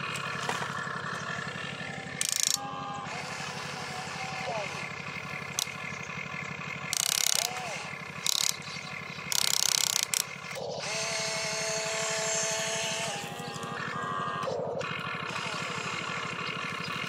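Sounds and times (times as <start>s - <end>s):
electric motors whirring: 0.0s - 17.0s
rattling ratchet-like grinding: 0.9s - 13.3s.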